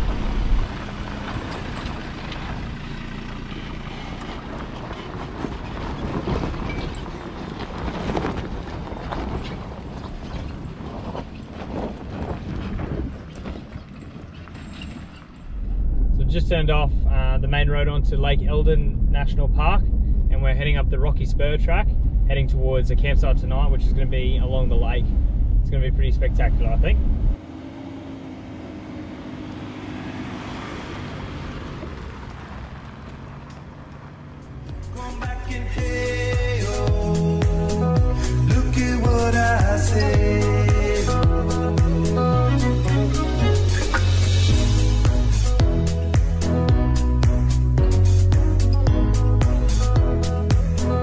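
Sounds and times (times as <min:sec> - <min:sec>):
trailer knocks and creaks: 0:00.0 - 0:16.2, 0:38.4 - 0:51.0
low engine and tyre rumble: 0:00.0 - 0:51.0.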